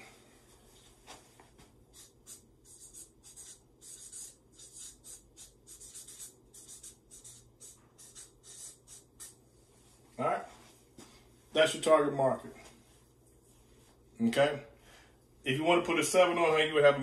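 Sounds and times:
marker pen scratching on paper: 0:01.9 - 0:09.4.

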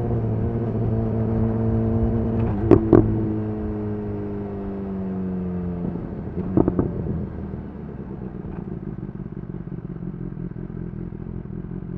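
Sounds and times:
motorcycle engine slowing to idle: 0:02.7 - 0:11.9.

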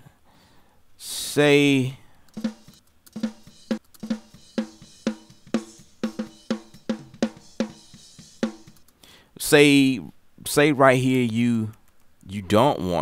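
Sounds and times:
snare drum hits: 0:02.4 - 0:08.8.

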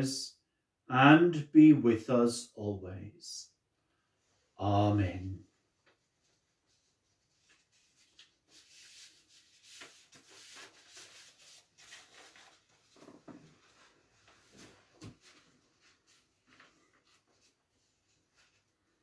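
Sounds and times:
paper rustling: 0:05.9 - 0:18.8.

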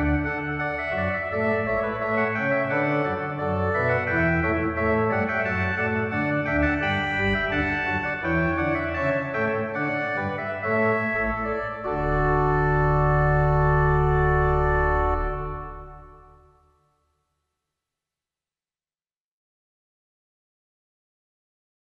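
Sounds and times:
organ music: 0:00.0 - 0:16.8.

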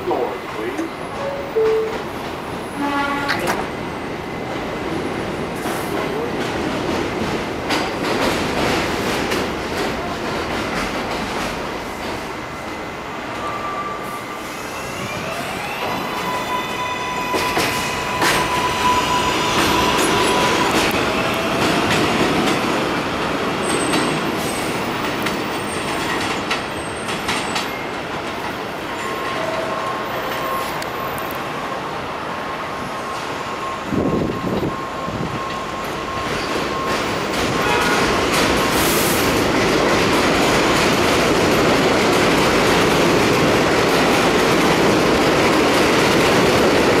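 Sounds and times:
high train whine: 0:00.0 - 0:47.0
train wheels clacking on rail joints: 0:05.6 - 0:12.3.

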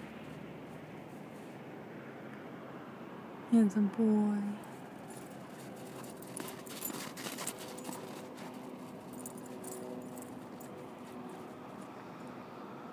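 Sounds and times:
footsteps crunching in snow: 0:04.8 - 0:11.9.

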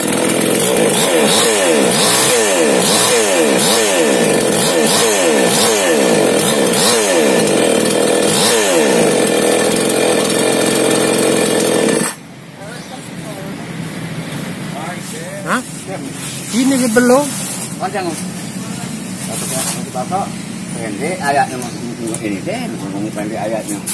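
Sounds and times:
chainsaw engine revving: 0:00.0 - 0:12.2.

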